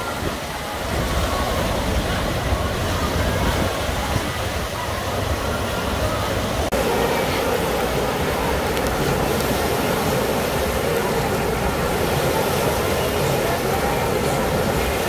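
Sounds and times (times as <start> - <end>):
waves breaking in wave pool: 0.0 - 15.0.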